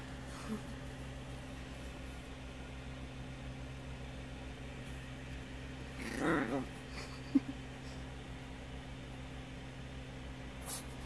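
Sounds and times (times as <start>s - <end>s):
small dog growling: 5.9s - 7.0s.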